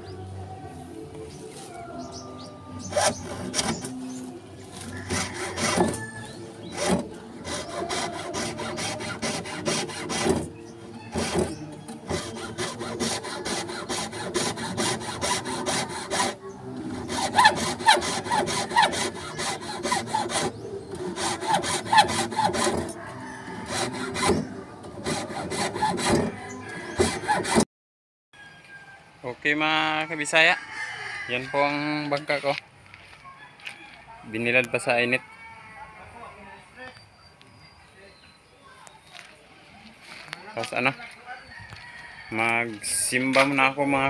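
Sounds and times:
hand saw cutting wood: 2.8 - 27.7.

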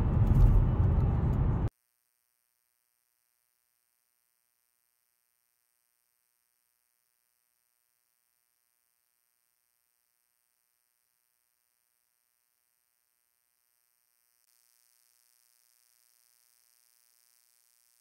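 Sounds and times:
low hum: 0.0 - 1.7
faint steady hiss: 1.8 - 18.0.

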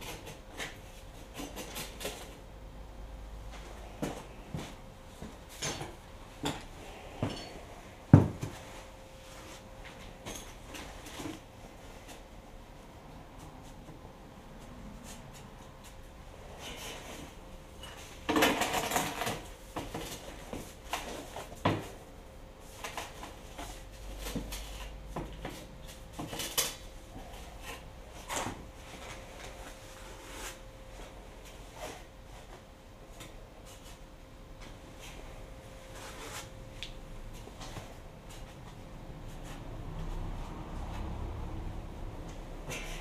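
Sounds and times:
faint steady hum: 0.0 - 43.0.

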